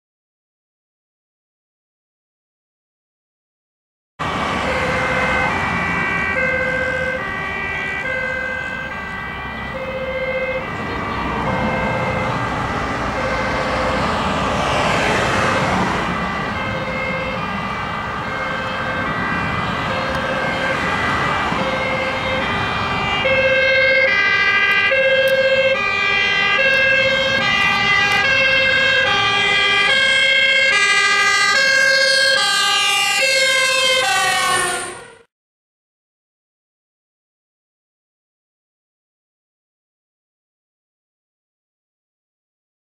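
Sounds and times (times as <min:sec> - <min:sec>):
fire engine two-tone siren: 0:04.2 - 0:35.3
motorway traffic noise: 0:04.2 - 0:35.3.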